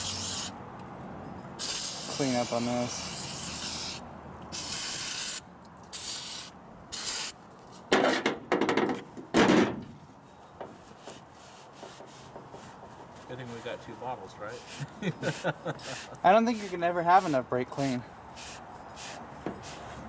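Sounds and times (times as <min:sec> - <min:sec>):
aerosol spray hissing: 0:00.0 - 0:00.5, 0:01.6 - 0:07.3
rubbing strokes: 0:10.7 - 0:20.0.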